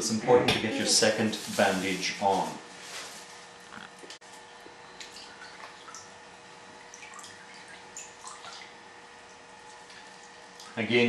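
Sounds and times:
faint steady hum: 0.0 - 11.0
water drips and small splashes: 5.0 - 10.8.

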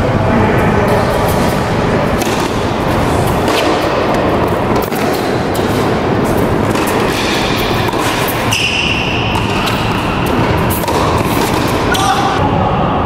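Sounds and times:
indoor hall background din: 0.0 - 13.0
tennis ball bouncing: 2.2 - 12.4
tennis racket strikes: 2.2 - 12.4
high shoe squeal: 7.0 - 12.4.

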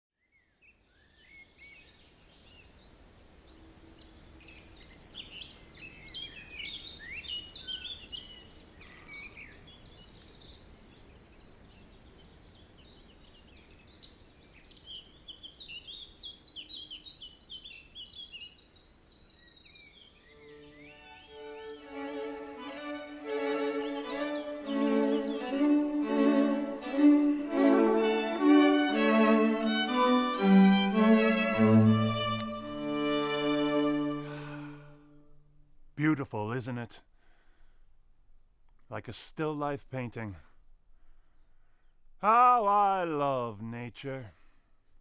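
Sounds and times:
songbirds chirping and singing: 0.2 - 35.8
low outdoor ambience: 0.2 - 45.0.

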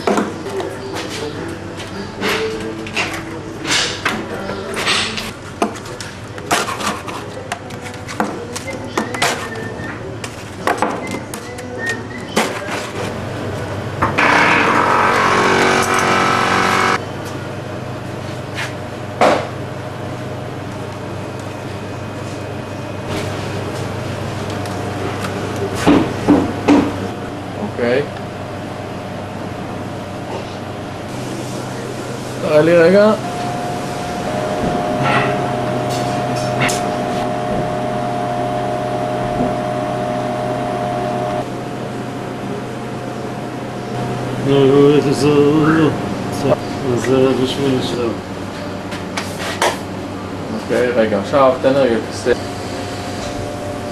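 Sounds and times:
oven fan and motor hum: 0.0 - 53.9
high whine: 13.5 - 17.6, 27.0 - 48.9
vibrating table buzzing: 14.0 - 17.0, 32.4 - 41.5
low steady hum: 27.0 - 48.8.

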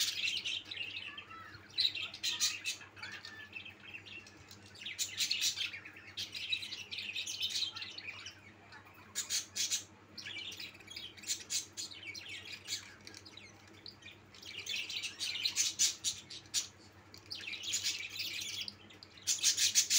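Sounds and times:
budgerigars chirping: 4.8 - 8.3, 9.0 - 16.7, 17.4 - 19.9.

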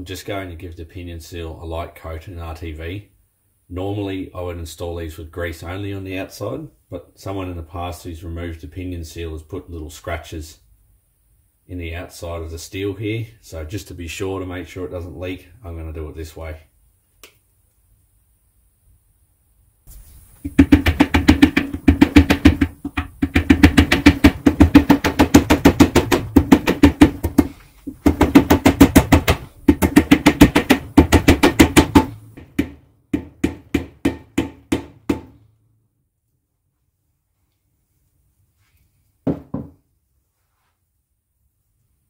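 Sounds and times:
rapid hammer blows on metal: 20.5 - 35.4.

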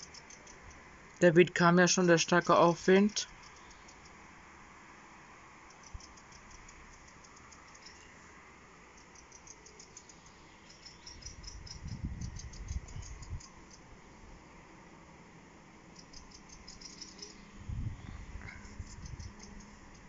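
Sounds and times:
faint high-pitched chirping: 0.0 - 0.9, 2.9 - 4.2, 5.6 - 13.9, 15.9 - 20.0
wind gusting across microphone: 11.2 - 13.6, 17.4 - 20.0.

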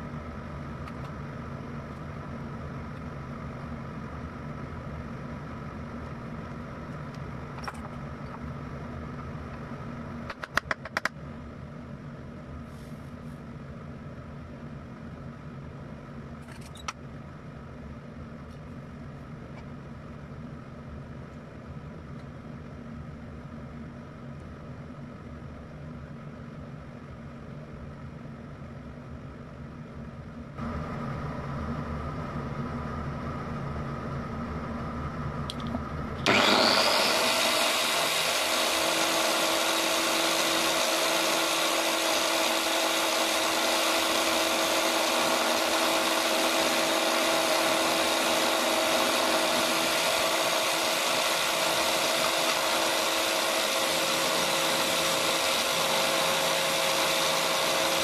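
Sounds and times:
low machine hum: 0.0 - 58.0
angle grinder whining: 36.2 - 58.0.

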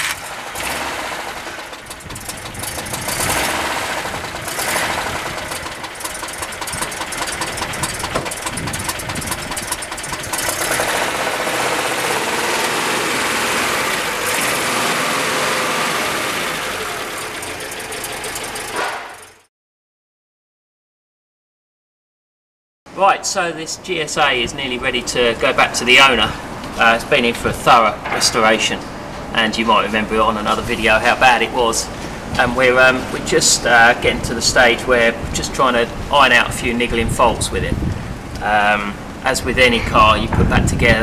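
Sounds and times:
car engine revving: 0.0 - 19.4
wind buffeting microphone: 1.8 - 5.9, 6.5 - 10.6, 35.1 - 38.4, 39.0 - 41.0.

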